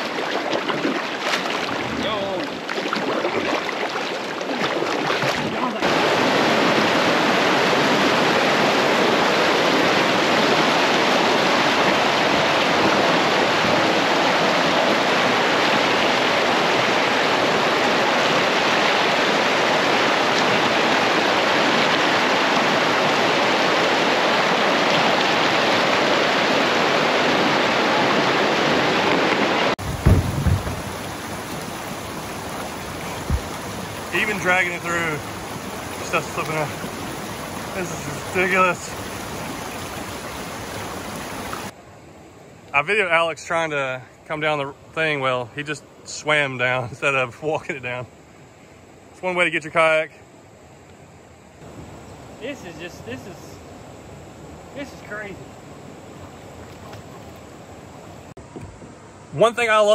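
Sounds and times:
whitewater rushing: 0:00.0 - 0:41.8
low thumps: 0:29.8 - 0:34.2.

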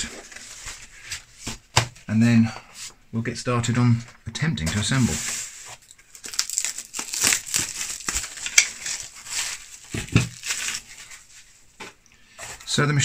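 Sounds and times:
cling film crinkling: 0:04.8 - 0:11.6.

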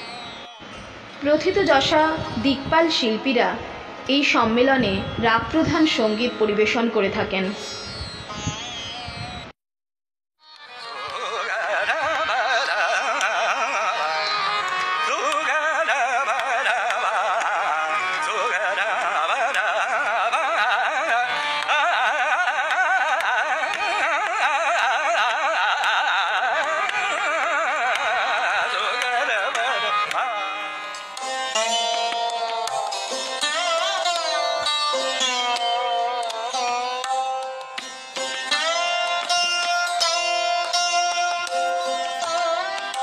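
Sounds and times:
tanpura drone: 0:00.0 - 0:04.1, 0:04.8 - 0:09.4, 0:10.5 - 0:43.0
person singing ornamented passages: 0:00.0 - 0:09.5, 0:10.7 - 0:43.0.

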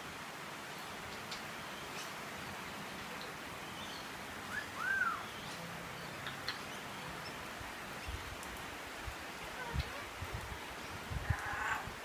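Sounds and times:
rain hiss: 0:00.0 - 0:12.0
parrot whistle: 0:04.5 - 0:05.2.

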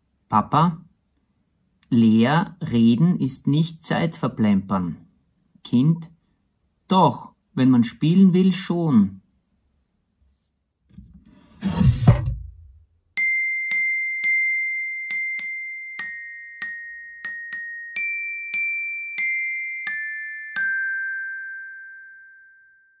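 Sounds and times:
glockenspiel melody: 0:13.2 - 0:23.0.

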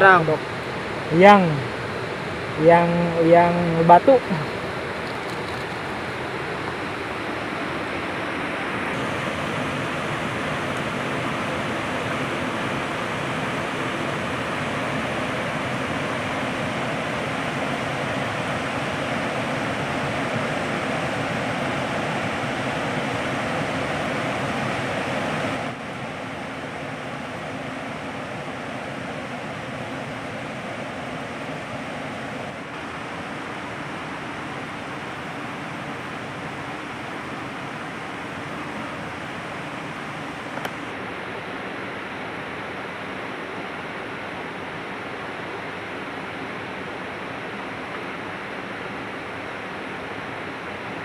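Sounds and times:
river water rushing: 0:00.0 - 0:51.0.

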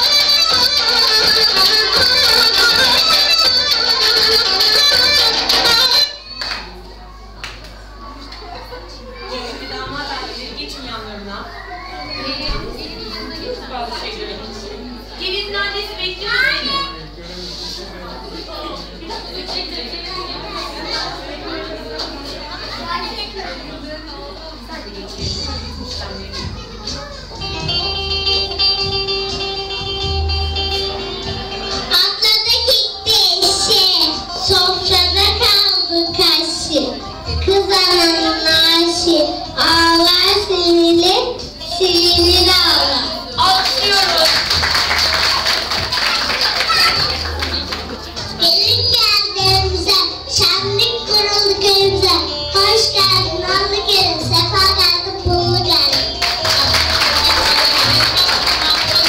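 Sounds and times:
held instrumental notes: 0:00.0 - 0:06.4, 0:25.2 - 0:59.0
backing music with low beat: 0:25.2 - 0:35.4, 0:49.4 - 0:59.0
girl singing into a microphone: 0:48.5 - 0:56.2.

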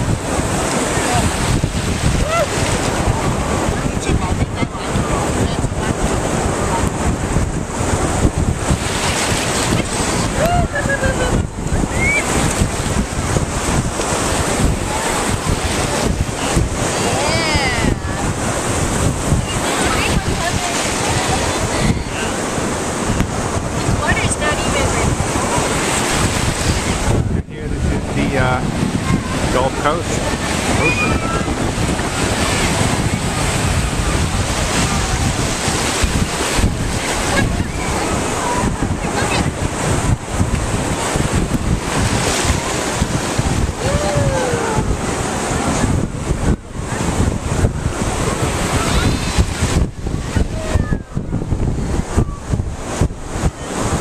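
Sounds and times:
small waves washing in: 0:00.0 - 0:54.0
wind buffeting microphone: 0:00.0 - 0:54.0.

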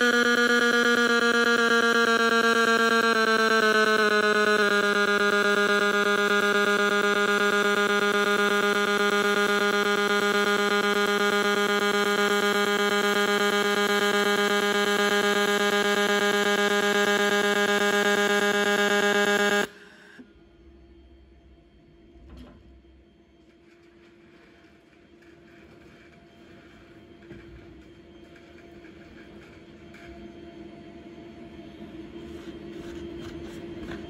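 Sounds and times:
welding arc buzzing: 0:00.0 - 0:19.8.

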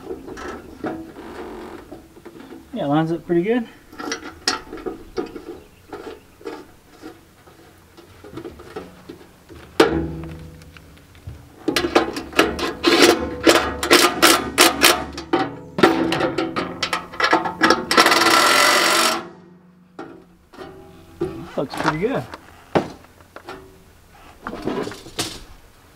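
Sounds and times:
metal knocks in steel can: 0:09.7 - 0:10.6, 0:11.6 - 0:18.5.

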